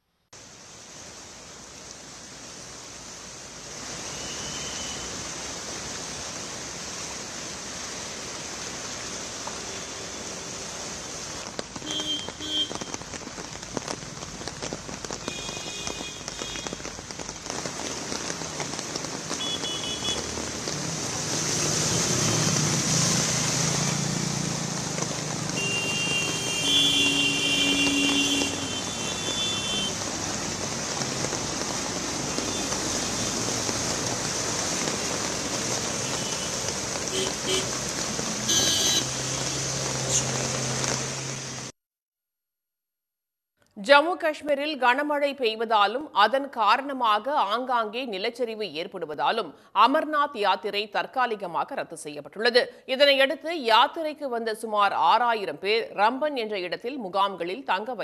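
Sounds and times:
rain on wet road: 0.4s - 41.7s
slow traffic: 0.4s - 41.7s
vehicle horns honking: 11.8s - 12.9s, 19.4s - 20.2s, 25.6s - 30.0s, 36.0s - 37.7s, 38.4s - 39.4s.

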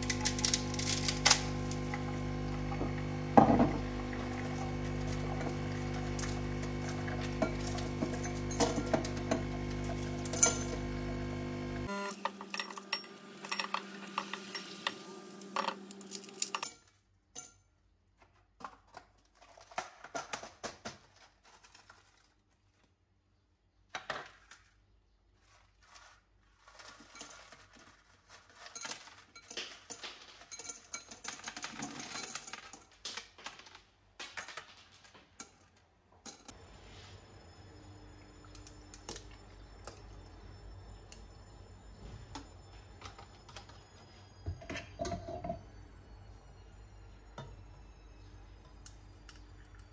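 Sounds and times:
ice cubes clinking into glass: 3.3s - 11.0s, 12.4s - 14.9s, 28.4s - 33.7s.

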